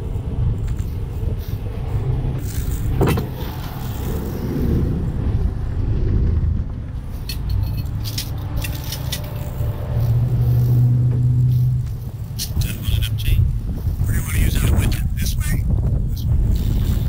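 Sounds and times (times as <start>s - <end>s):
strong wind buffeting microphone: 0.0s - 17.0s
truck engine rumble: 0.0s - 17.0s.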